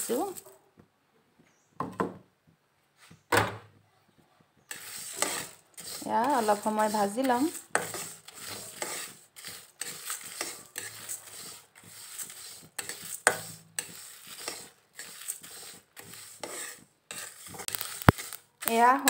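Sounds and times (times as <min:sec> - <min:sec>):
spatula scraping metal pan: 0:04.7 - 0:19.0
seeds popping: 0:17.1 - 0:19.0.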